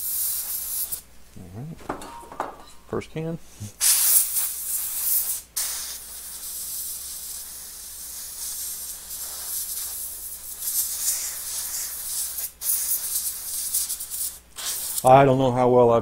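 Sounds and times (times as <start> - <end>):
compressed air spraying: 0.0 - 1.1, 3.8 - 15.1.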